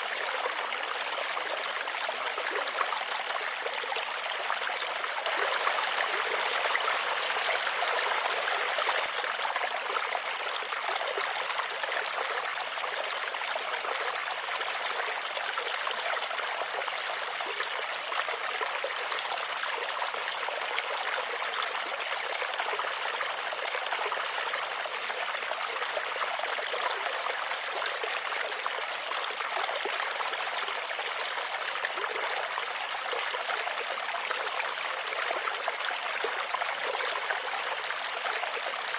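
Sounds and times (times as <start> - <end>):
running water: 0.0 - 38.9.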